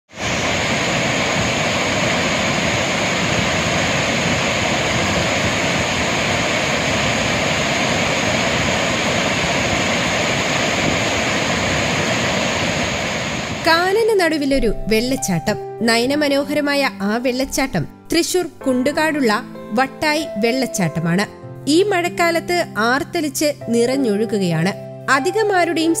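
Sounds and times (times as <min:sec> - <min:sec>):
waterfall rushing into pool: 0:00.1 - 0:13.7.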